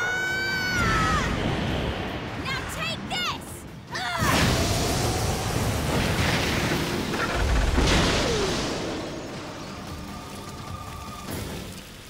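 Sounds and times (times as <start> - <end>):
background music: 0.0 - 12.0
roar of flame: 4.3 - 9.6.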